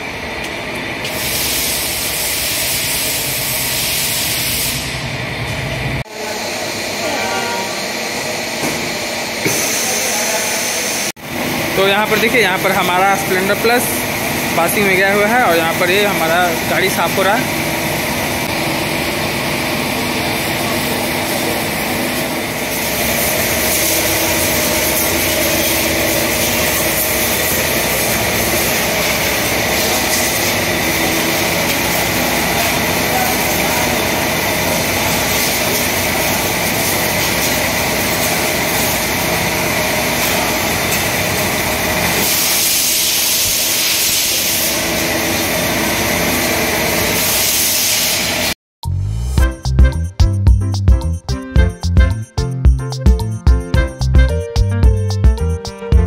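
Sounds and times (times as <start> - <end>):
washer motor pump hum: 0.0 - 48.5
high-pressure water jet hissing: 1.1 - 5.0, 11.9 - 48.6.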